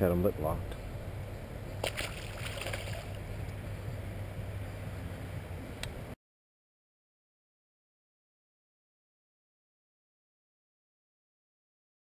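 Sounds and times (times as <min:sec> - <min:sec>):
wind rumbling on microphone: 0:00.0 - 0:06.2.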